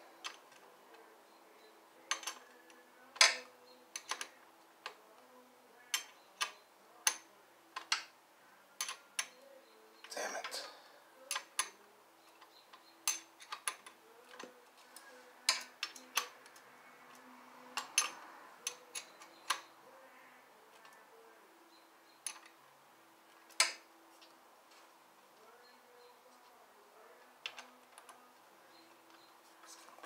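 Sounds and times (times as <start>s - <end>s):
metallic clicks of hand tools: 5.9s - 8.1s, 11.3s - 11.8s, 12.4s - 14.5s, 17.8s - 19.7s, 22.2s - 22.5s, 23.5s - 23.9s.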